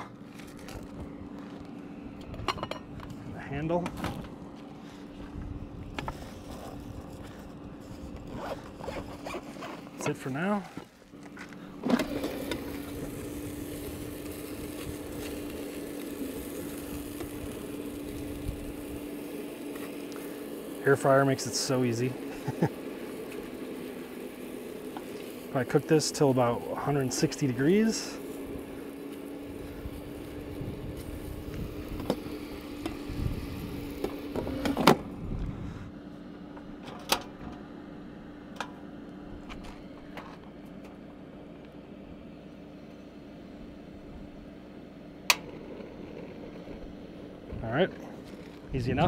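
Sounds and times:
air fryer fan humming: 0.0s - 49.0s.

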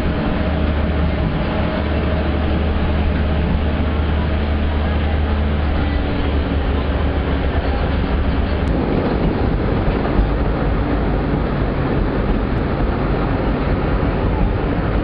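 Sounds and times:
train rumbling on track: 0.0s - 15.0s.

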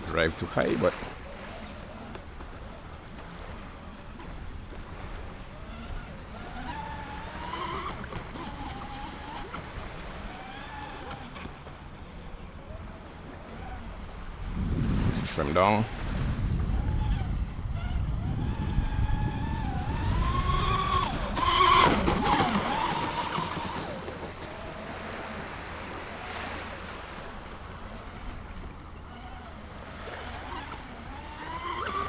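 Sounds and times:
rc boat electric motors whining: 0.4s - 14.6s, 15.9s - 32.0s
wind on microphone: 12.6s - 32.0s.

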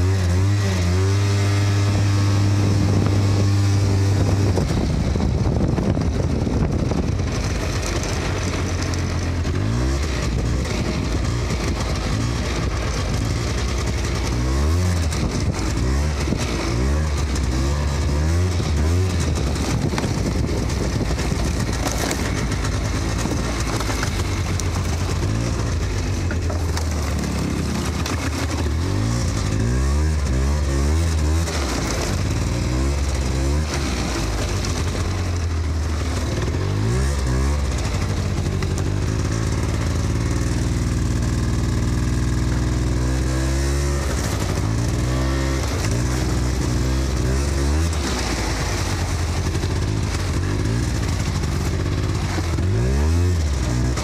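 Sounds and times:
atv engine revving: 0.0s - 54.0s
rattling: 2.4s - 29.8s.

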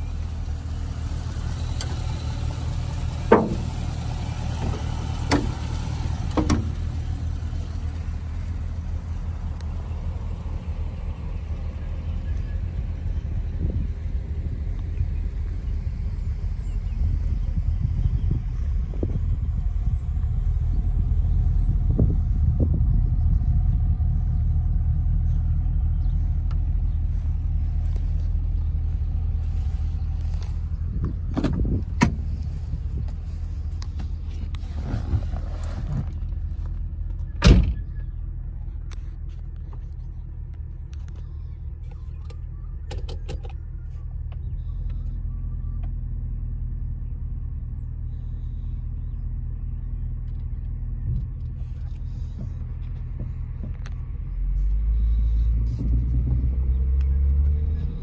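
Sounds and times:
car engine idling: 0.0s - 58.0s
sharp thump: 3.2s - 3.8s
knocks: 3.3s - 3.7s.

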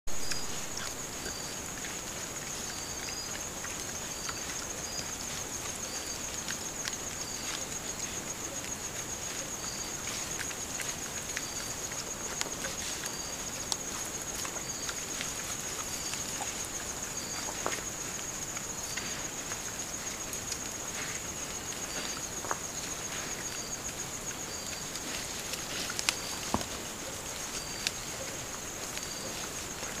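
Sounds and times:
high-pitched insect chorus: 0.1s - 30.0s
insect chirping: 0.1s - 30.0s
rustles and snaps in leaf litter: 24.8s - 28.1s.

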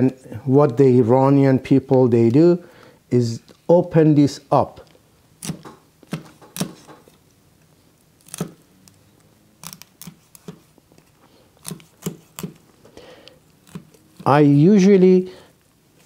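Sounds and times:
knife cutting through fish: 11.6s - 12.6s, 13.6s - 14.3s.

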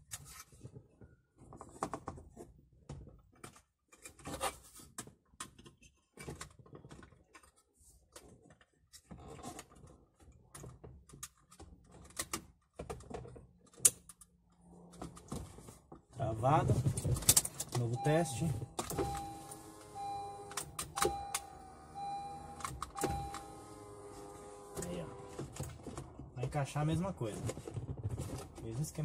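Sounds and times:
plastic parts clicking and scraping: 0.0s - 16.0s, 16.6s - 17.9s.

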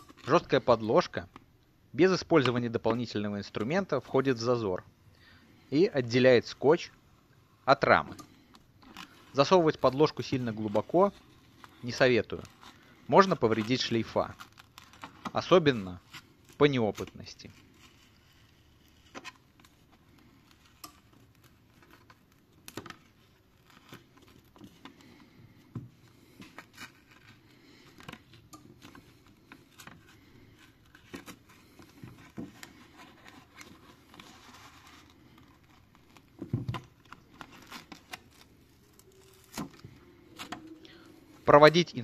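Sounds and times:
plastic sheet scraping along phone seam: 8.8s - 41.5s
adhesive tape peeling: 12.4s - 15.3s, 28.8s - 40.8s.

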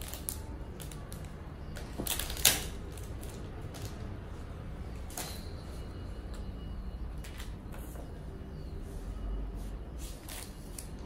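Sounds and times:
plastic packaging crinkling: 0.0s - 4.2s.

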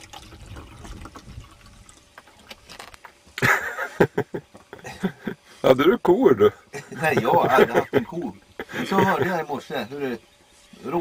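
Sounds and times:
liquid pouring from a bottle: 0.0s - 3.2s.

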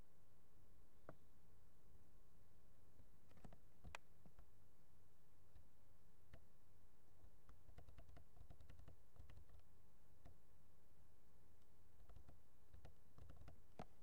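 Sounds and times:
computer mouse clicks: 3.2s - 4.4s, 7.4s - 9.6s, 12.0s - 14.0s.

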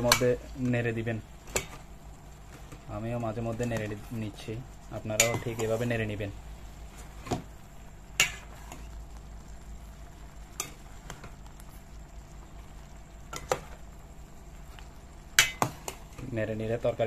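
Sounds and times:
spoon stirring vegetables in pot: 0.0s - 4.2s, 4.9s - 13.9s, 14.6s - 16.3s.

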